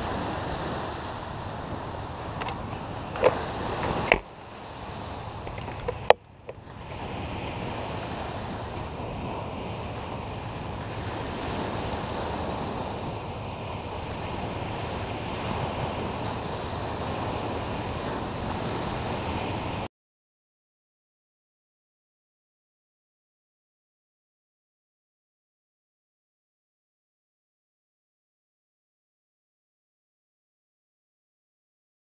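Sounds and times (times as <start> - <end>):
surf: 0.0 - 19.9
wind buffeting the microphone: 0.0 - 19.9.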